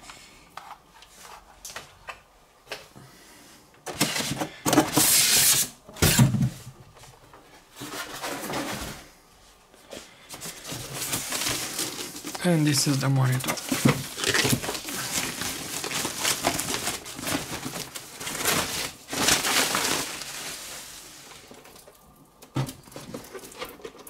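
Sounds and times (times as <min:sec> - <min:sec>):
sliding rustle: 0:13.4 - 0:21.5.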